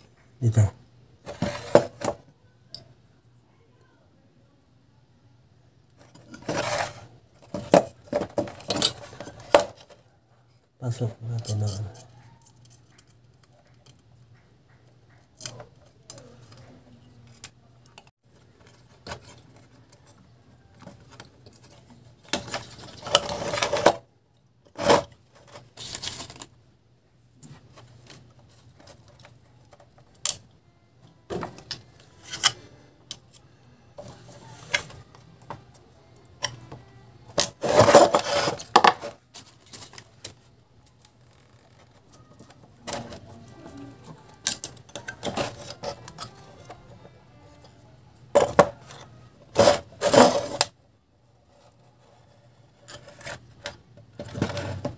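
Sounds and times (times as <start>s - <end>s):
handling wires on metal plate: 1.2s - 2.8s, 5.9s - 10.1s, 11.2s - 24.0s, 27.4s - 30.5s, 31.3s - 33.4s, 34.0s - 50.8s.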